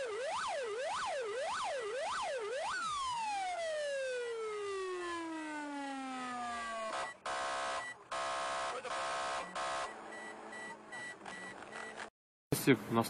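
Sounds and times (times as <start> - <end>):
police siren wailing: 0.0 - 11.6
car and road noise: 6.5 - 12.1
harsh buzzing horn blasts: 6.8 - 10.5.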